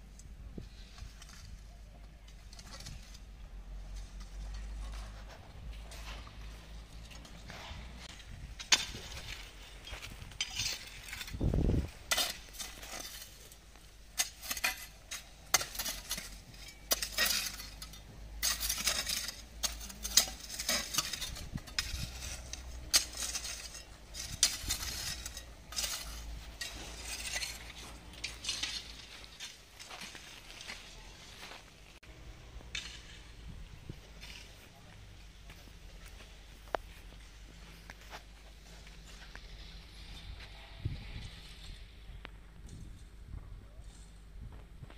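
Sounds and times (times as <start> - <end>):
metal hoe scraping stones: 0.6 - 41.9
stones clinking and rattling: 8.5 - 30.9.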